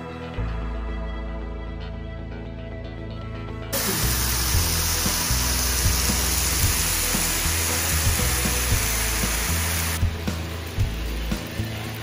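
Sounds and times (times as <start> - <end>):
meat sizzling on a griddle: 3.8 - 12.0.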